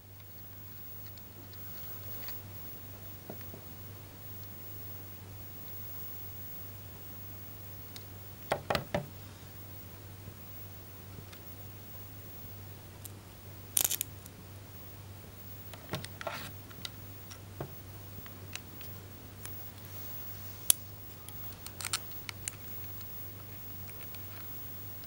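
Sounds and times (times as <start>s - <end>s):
low steady hum: 0.0s - 25.0s
small parts clicking and rattling: 13.8s - 14.1s, 20.7s - 24.5s.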